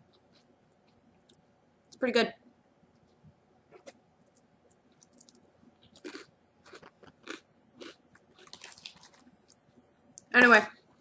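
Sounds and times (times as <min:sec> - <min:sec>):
person chewing crunchy cracker: 0:03.8 - 0:09.6.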